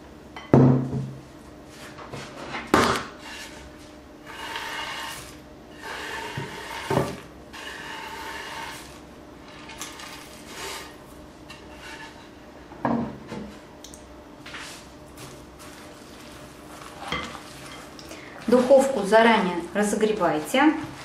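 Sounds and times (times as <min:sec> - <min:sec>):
nuts scraping over wood: 0:04.2 - 0:11.0.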